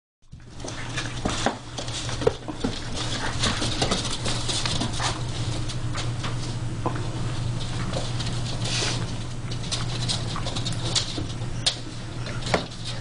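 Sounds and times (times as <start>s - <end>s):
paws pattering on wooden floor: 0.3s - 13.0s
steady low hum: 0.3s - 13.0s.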